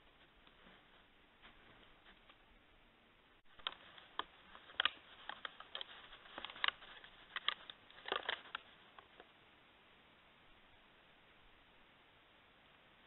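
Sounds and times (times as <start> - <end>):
hooves crunching in snow: 0.0 - 2.7, 3.4 - 9.3.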